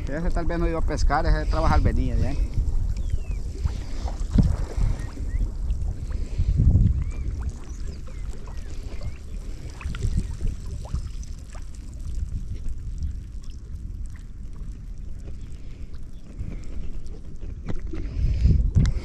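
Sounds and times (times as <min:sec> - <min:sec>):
water and wind rumble: 0:00.0 - 0:19.0
faint bird chirps: 0:03.0 - 0:03.9, 0:04.8 - 0:05.5, 0:06.9 - 0:11.2.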